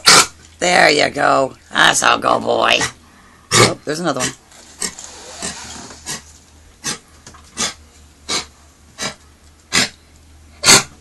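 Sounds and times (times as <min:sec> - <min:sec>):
dog coughing: 0:00.0 - 0:00.4, 0:03.5 - 0:04.9, 0:07.6 - 0:10.0, 0:10.6 - 0:11.0.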